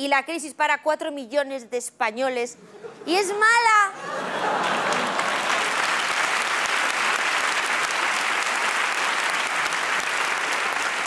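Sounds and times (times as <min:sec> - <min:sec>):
large audience applauding: 0:04.2 - 0:11.0.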